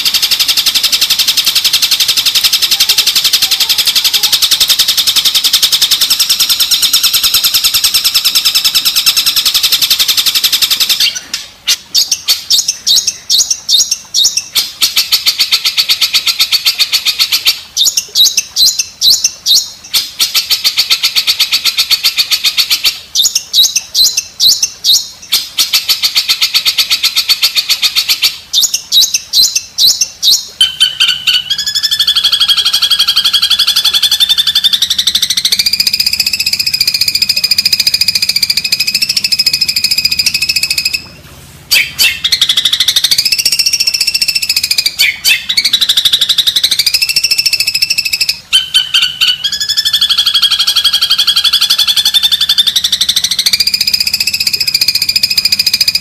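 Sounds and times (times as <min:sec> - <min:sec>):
dense bird trill: 0:00.0 - 0:56.0
rapid chattering pulses: 0:30.7 - 0:41.1, 0:41.7 - 0:56.0.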